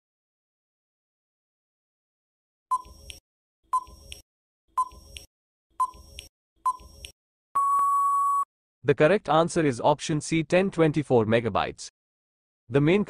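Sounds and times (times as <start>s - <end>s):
long steady beep: 7.6s - 8.5s.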